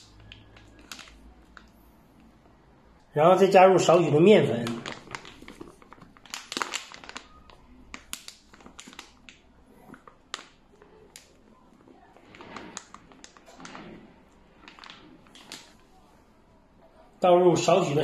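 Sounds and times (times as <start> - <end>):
paper bag crinkling: 0.0 - 1.9, 3.8 - 16.1.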